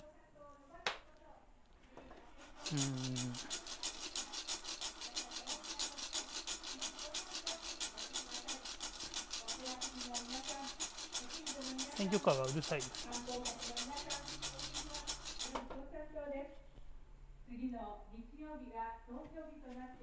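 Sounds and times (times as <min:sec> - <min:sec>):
coffee beans rattling in saucepan: 0:02.4 - 0:15.8.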